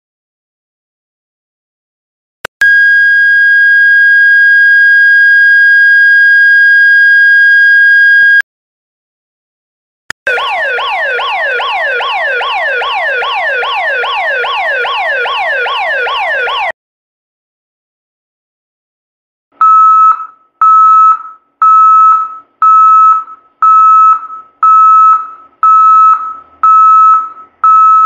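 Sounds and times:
continuous high siren tone: 0:02.6 - 0:08.4, 0:10.3 - 0:16.8
rapid falling siren tone: 0:02.7 - 0:08.4, 0:10.3 - 0:16.7.

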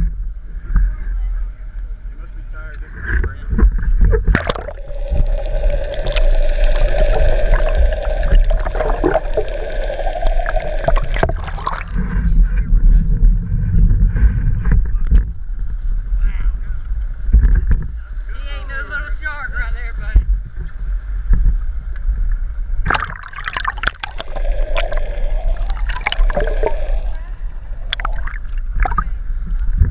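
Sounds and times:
muffled underwater rush of water: 0:00.0 - 0:16.2, 0:20.3 - 0:29.9
steady hum: 0:03.3 - 0:13.5, 0:22.6 - 0:29.8.

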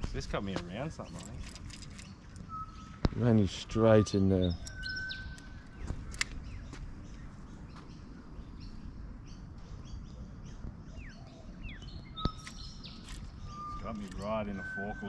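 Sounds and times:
birds chirping: 0:00.0 - 0:15.0
low outdoor rumble: 0:00.0 - 0:15.0
falling bird whistles: 0:02.5 - 0:03.0
sharp click: 0:12.2 - 0:13.3.

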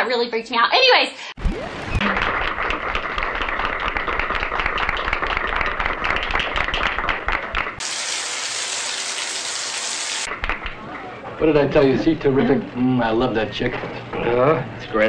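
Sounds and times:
audience clapping: 0:01.9 - 0:07.8.

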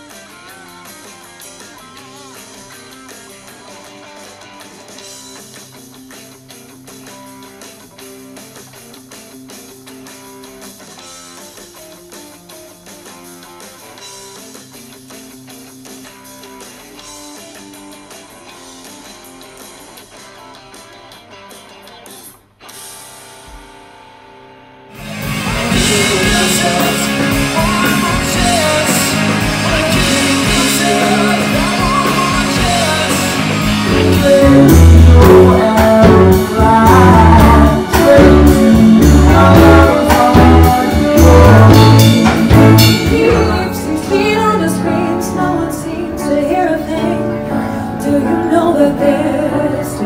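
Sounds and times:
live blues-rock band: 0:00.0 - 0:22.1, 0:25.0 - 0:50.0
heavy bass beat: 0:25.0 - 0:43.8.

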